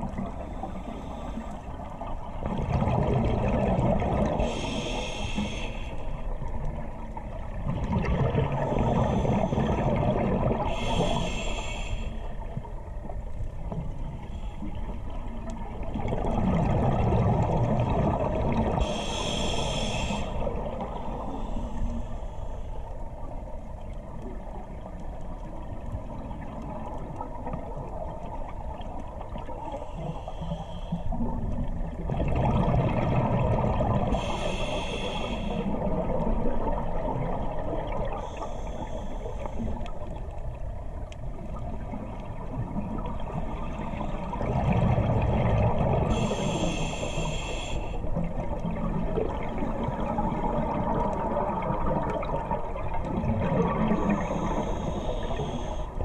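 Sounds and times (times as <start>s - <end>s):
underwater exhale bubbling: 0.0s - 6.2s, 6.8s - 12.6s, 13.6s - 22.4s, 26.0s - 40.6s, 41.2s - 56.0s
regulator inhale hiss: 0.2s - 2.1s, 4.4s - 6.6s, 8.6s - 9.8s, 10.6s - 12.5s, 14.1s - 15.2s, 18.8s - 23.2s, 29.6s - 31.5s, 34.0s - 35.9s, 38.0s - 40.2s, 46.1s - 48.2s, 53.9s - 56.0s.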